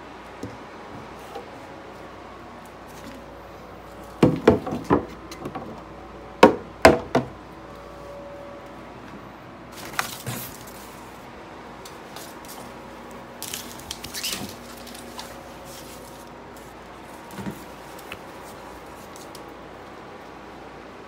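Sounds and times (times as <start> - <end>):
rustling: 13.4 - 19.5.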